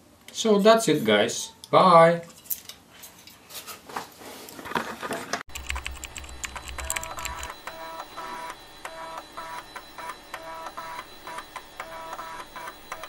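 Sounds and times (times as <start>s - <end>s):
keyboard-like typing clicks: 5.5s - 13.0s.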